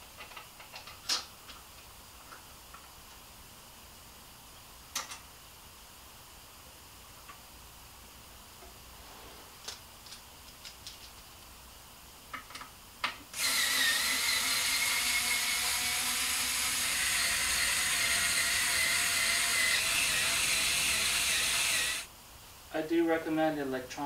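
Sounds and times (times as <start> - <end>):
electric drill whining: 13.4 - 22.1.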